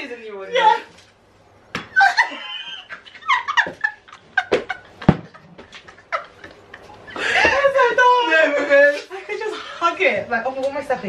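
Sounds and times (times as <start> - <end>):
women laughing and squealing: 1.9 - 5.0.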